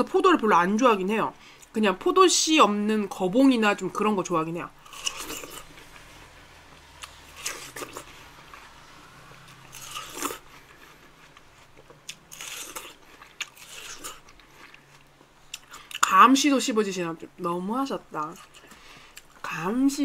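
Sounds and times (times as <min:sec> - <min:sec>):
chewing watermelon crunches: 0:04.8 - 0:16.1.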